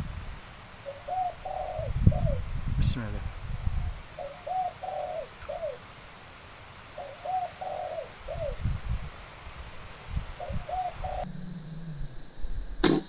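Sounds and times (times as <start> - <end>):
dove cooing: 0.8 - 2.4, 4.2 - 5.8, 7.0 - 8.6, 10.4 - 11.3
wind buffeting microphone: 1.4 - 4.0, 8.3 - 9.2, 10.0 - 11.2.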